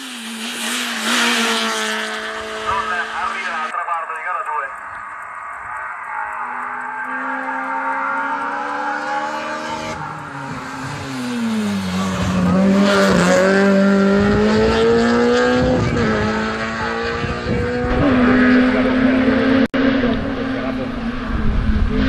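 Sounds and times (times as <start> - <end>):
race car engine revving: 0.0 - 22.0.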